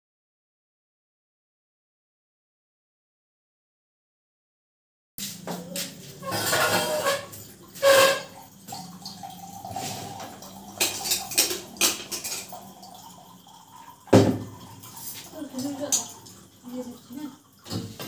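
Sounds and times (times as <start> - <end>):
metal dishes clinking and clattering: 5.5 - 13.4.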